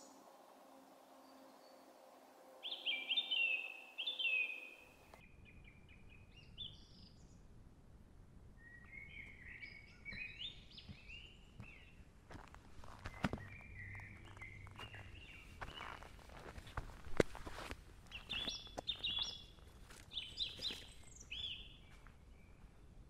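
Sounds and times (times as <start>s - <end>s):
songbirds singing: 1.1s - 7.5s, 8.6s - 22.8s
footsteps on dirt path: 10.1s - 22.3s.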